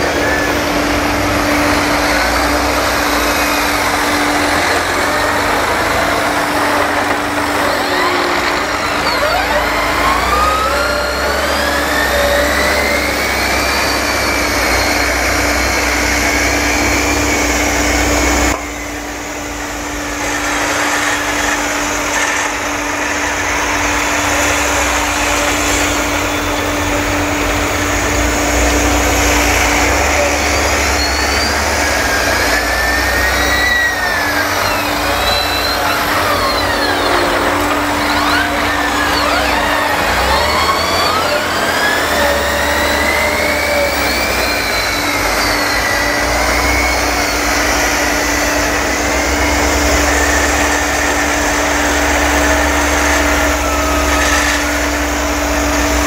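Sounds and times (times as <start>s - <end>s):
tractor engines whining: 0.0s - 56.0s.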